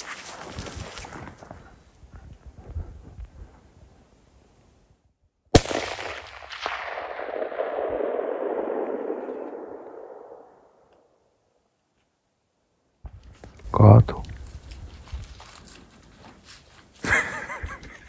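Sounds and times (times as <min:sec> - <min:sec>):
rifle shot: 0:05.5 - 0:10.9
rolling echo of gunshot: 0:05.5 - 0:10.9.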